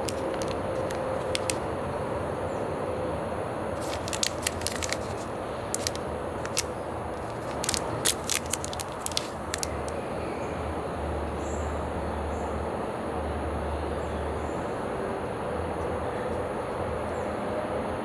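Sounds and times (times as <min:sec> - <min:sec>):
plastic wrapper crinkling and tearing: 0:00.0 - 0:01.6, 0:03.8 - 0:10.0.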